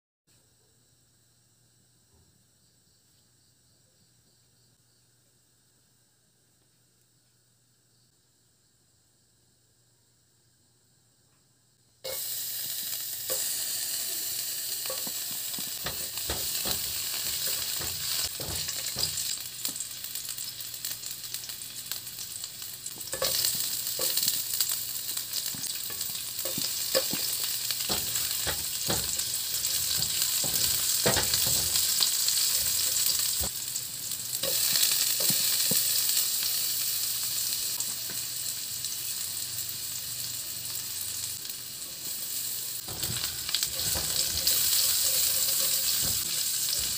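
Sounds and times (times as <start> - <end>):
vegetables sizzling in hot oil: 12.0 - 46.9.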